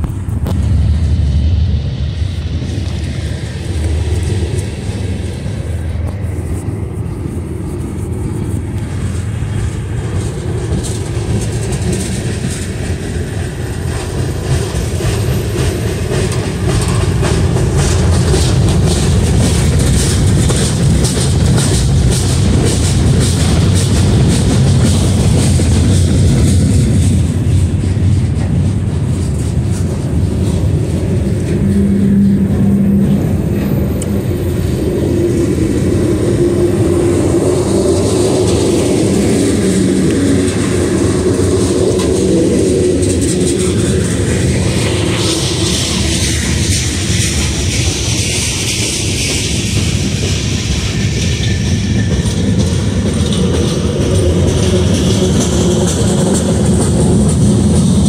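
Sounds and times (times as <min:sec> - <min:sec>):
clickety-clack over rail joints: 0:00.0 - 0:58.0
freight train wheels rumbling: 0:00.0 - 0:58.0.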